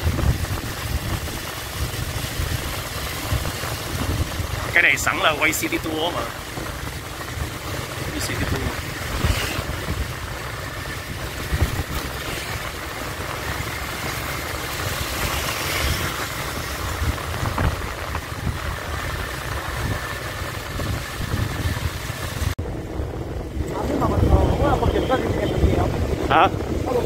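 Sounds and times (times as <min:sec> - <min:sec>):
engine and traffic noise: 0:00.0 - 0:27.0
wind rumbling on microphone: 0:00.0 - 0:27.0.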